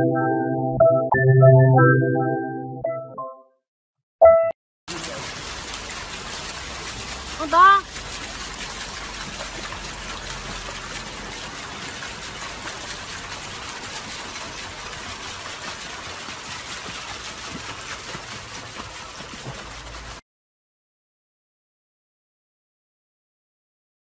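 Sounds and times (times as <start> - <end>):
dog paddling through water: 4.9 - 20.2.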